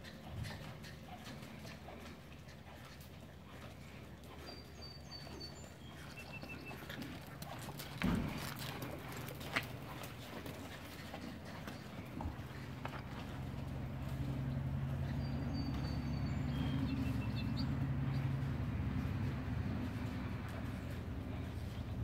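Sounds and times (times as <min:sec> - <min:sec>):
horse hoofbeats on sand: 0:00.0 - 0:22.0.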